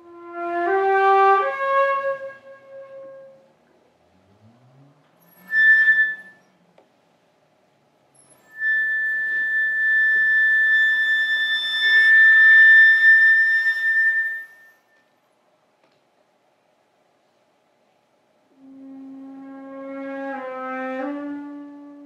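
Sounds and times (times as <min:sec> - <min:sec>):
flute playing high notes: 0:08.5 - 0:15.0.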